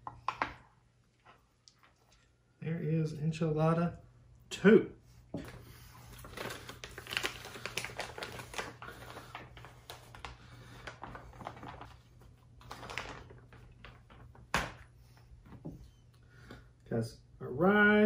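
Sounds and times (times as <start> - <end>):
plastic pouch crinkling: 6.1 - 14.8.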